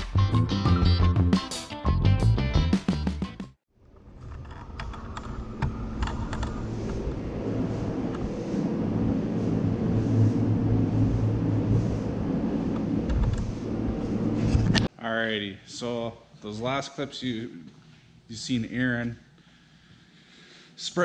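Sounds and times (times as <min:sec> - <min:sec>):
ventilation fans humming: 0:05.0 - 0:21.0.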